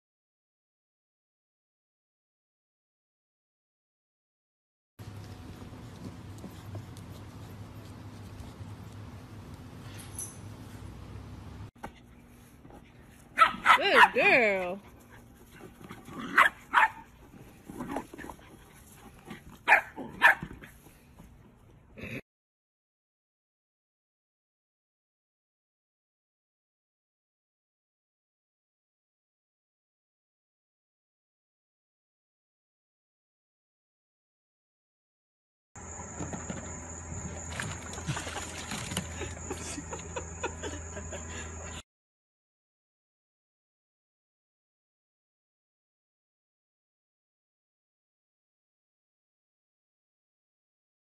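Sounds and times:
low hum: 5.0s - 13.6s.

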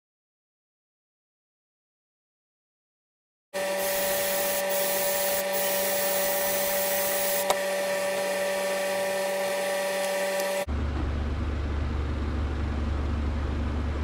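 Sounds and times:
machine whirring: 3.6s - 10.7s.

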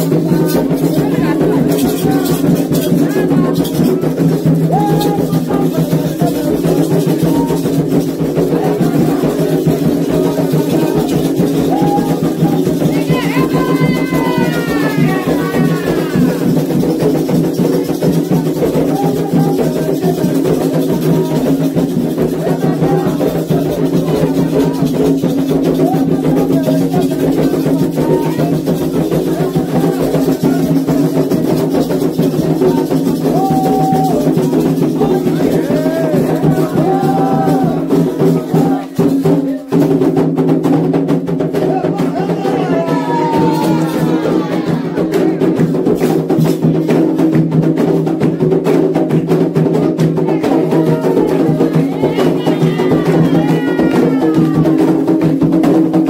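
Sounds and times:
group singing: 0.0s - 16.8s, 18.6s - 25.1s, 32.3s - 39.6s, 41.6s - 45.8s, 50.1s - 55.1s
bell being shaken: 0.0s - 40.2s, 41.4s - 47.3s, 49.9s - 55.5s
hand drums: 0.0s - 56.0s.

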